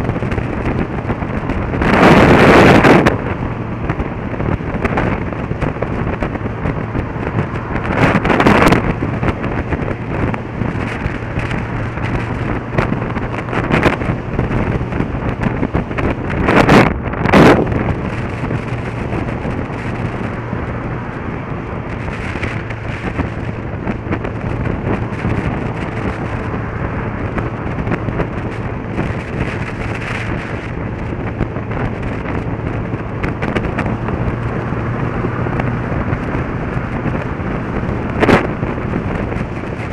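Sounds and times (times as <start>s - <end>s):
motorcycle engine hum: 0.0s - 39.9s
wind rush on microphone: 0.0s - 39.9s.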